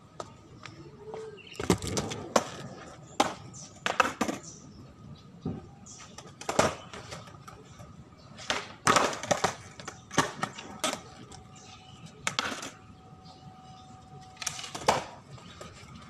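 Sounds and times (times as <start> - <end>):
skateboard wheels rolling: 0.2 - 4.6, 5.6 - 13.0, 14.2 - 16.0
skateboard popping and clattering: 1.5 - 4.6, 6.0 - 7.7, 8.4 - 11.5, 12.2 - 12.8, 14.4 - 15.9.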